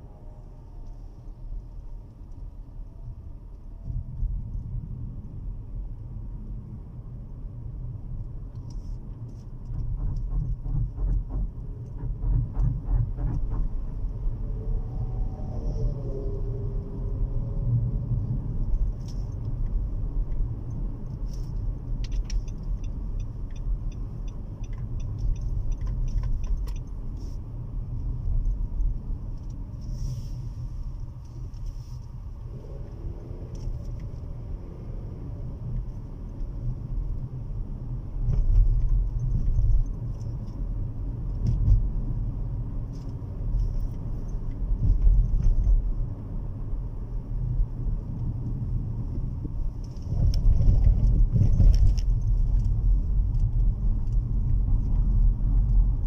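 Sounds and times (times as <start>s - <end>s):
engine and tyre rumble: 0.0s - 56.0s
light clicks and ticks: 18.7s - 27.4s.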